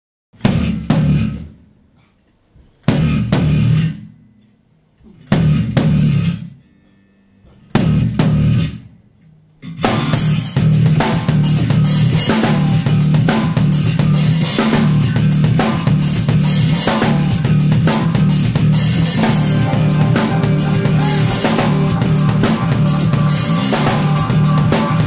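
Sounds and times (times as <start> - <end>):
rock band stop-time hits: 5.3 - 6.5, 7.7 - 8.8, 9.8 - 25.0
rock band driving groove: 9.8 - 25.0.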